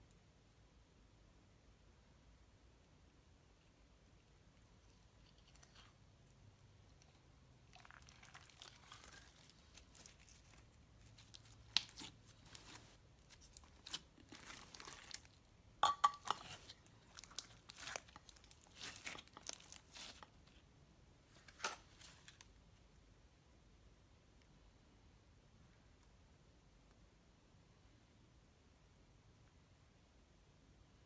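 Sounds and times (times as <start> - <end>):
slime crackling and squishing: 6.8 - 15.5, 16.1 - 20.6.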